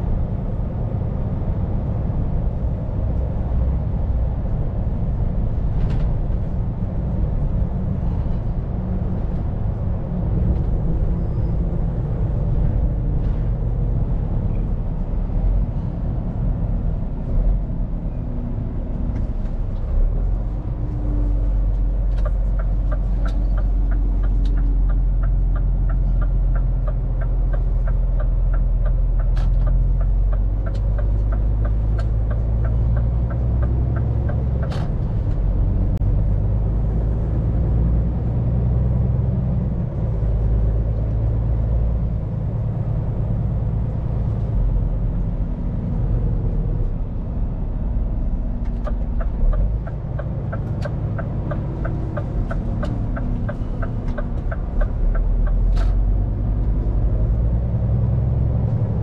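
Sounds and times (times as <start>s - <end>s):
truck diesel engine running: 0.0s - 37.8s, 47.6s - 59.0s
turn signal ticking: 20.8s - 36.3s, 48.5s - 58.8s.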